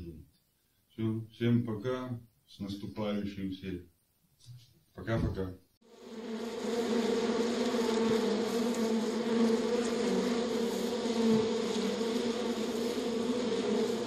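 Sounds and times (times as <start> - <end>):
honeybees buzzing: 5.8 - 14.0.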